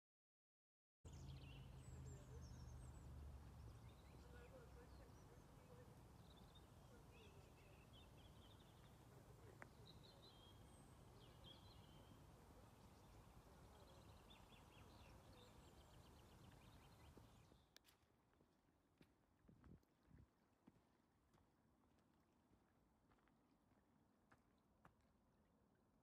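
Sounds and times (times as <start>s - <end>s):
faint birdsong: 1.1s - 17.8s.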